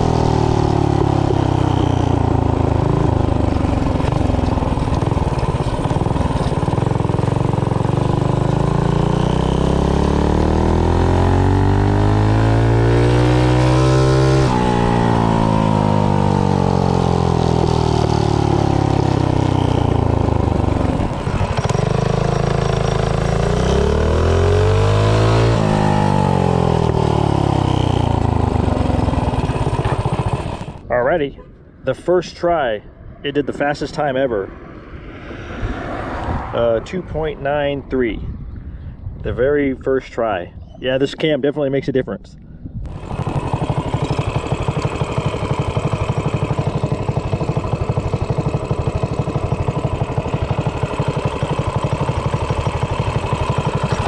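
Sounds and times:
minibike engine revving: 0.0s - 30.9s, 42.9s - 54.0s.

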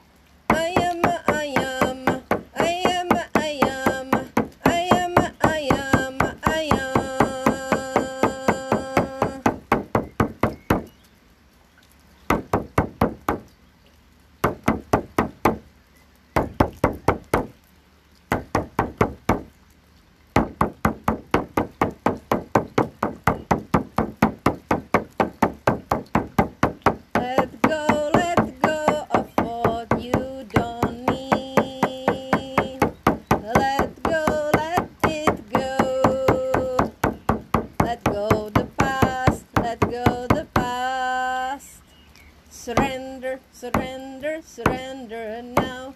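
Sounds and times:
woman chanting wordlessly: 0.5s - 9.8s, 26.9s - 41.9s, 42.5s - 45.9s.

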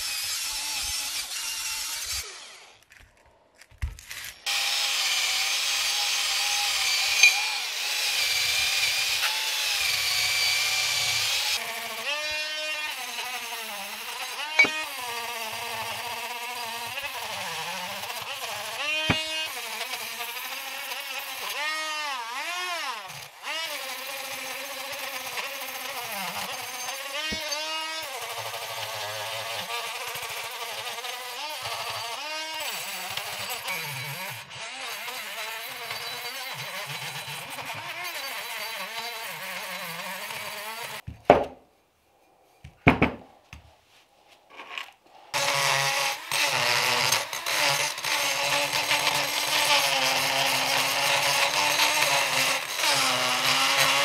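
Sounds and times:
rotary tool grinding metal: 0.0s - 41.0s, 44.5s - 54.0s
sharp knocks: 41.0s - 41.6s, 42.7s - 43.3s.

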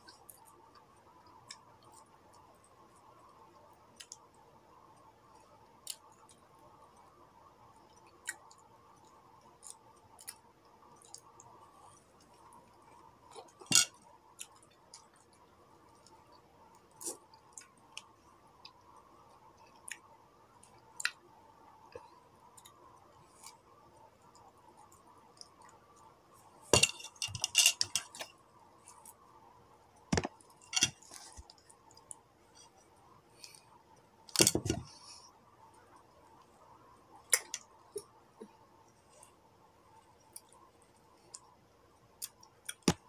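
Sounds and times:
crackling handling noises: 25.5s - 29.2s, 30.1s - 33.7s.

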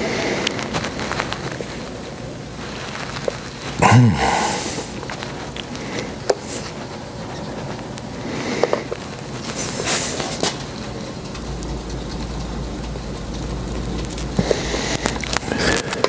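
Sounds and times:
steady background hiss: 0.0s - 16.0s
person grunting: 3.8s - 5.0s.

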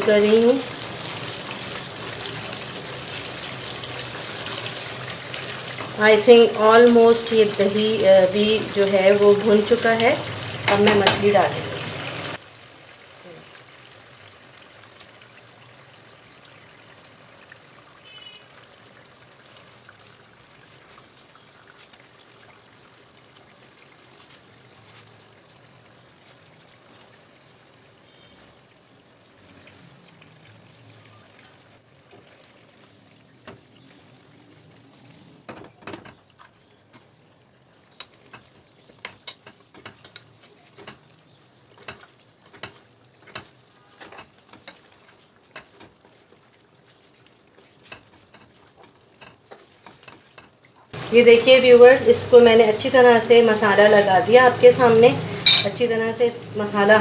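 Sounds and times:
gravy simmering and sizzling: 0.0s - 57.0s.

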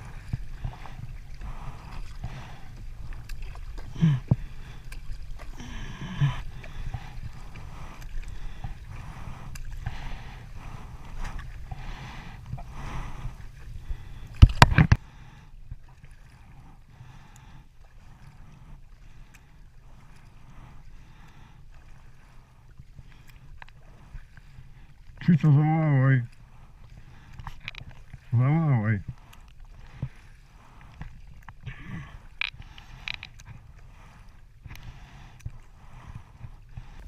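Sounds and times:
steady low rumble: 0.0s - 21.4s
kayak paddles swishing through water: 0.0s - 37.0s.

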